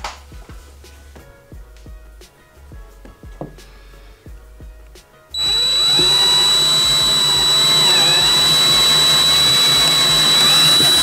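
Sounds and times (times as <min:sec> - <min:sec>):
cordless drill whining: 0:05.4 - 0:11.0.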